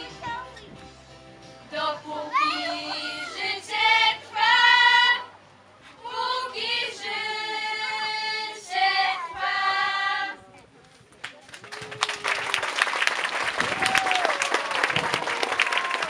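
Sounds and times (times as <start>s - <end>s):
young voices singing: 1.7s - 10.5s.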